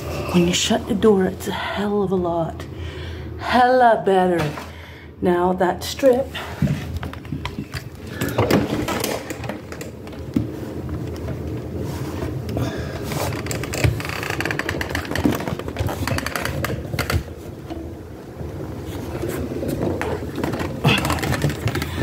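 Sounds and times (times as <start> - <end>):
weatherstrip scraping and rustling: 18.6 - 22.0.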